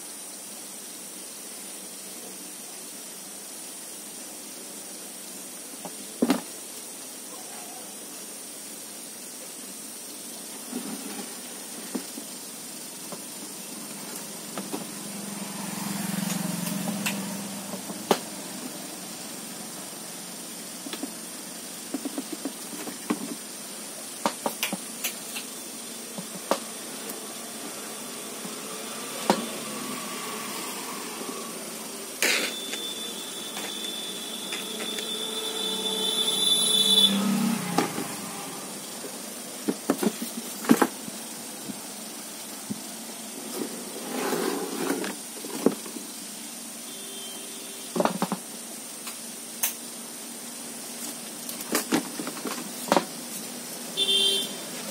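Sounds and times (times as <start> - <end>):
steady hiss: 0.0 - 54.9
high steady tone: 27.8 - 38.8.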